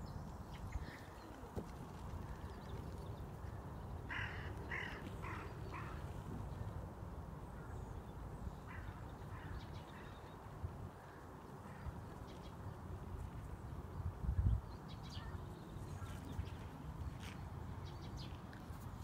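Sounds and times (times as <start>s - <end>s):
wind rumble on microphone: 12.8s - 19.0s.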